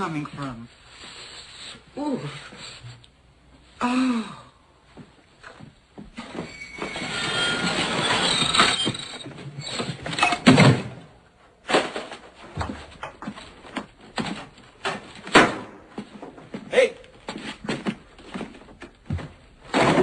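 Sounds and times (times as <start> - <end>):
knocks and bumps: 5.0 - 20.0
wooden ladder creaking and sliding: 5.4 - 15.4, 16.0 - 20.0.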